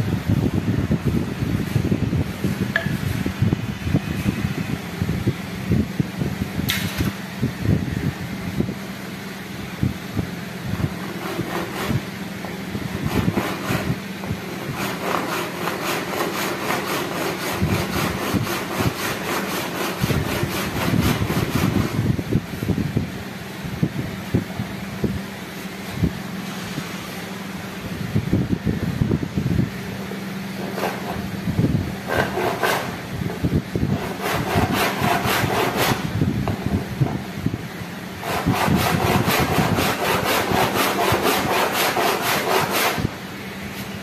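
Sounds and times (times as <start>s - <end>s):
steady low hum: 0.0s - 44.0s
hand saw cutting wood: 11.0s - 22.0s, 30.6s - 31.3s, 32.0s - 33.0s, 33.9s - 37.1s, 38.2s - 43.1s.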